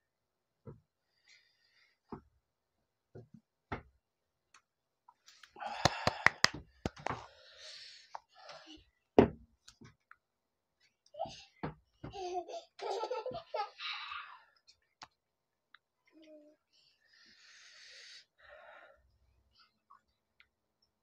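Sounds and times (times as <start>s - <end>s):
mouth clicks: 5.7s - 7.2s
sharp hand claps: 5.7s - 7.2s.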